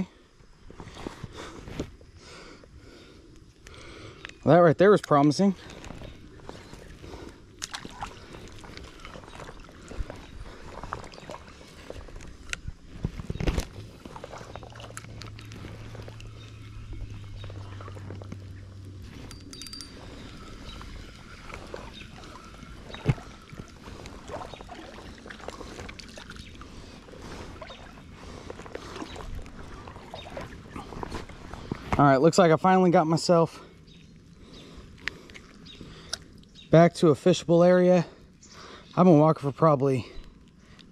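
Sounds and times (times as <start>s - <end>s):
steady low hum: 5.2s - 32.0s
water splashing around wading legs: 5.6s - 32.0s.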